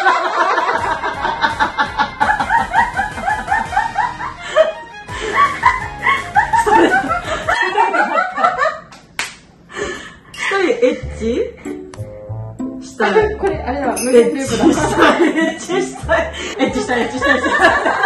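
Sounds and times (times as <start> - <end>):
women laughing: 0.0 - 8.9, 14.4 - 18.0
background music: 0.2 - 7.7, 10.8 - 18.0.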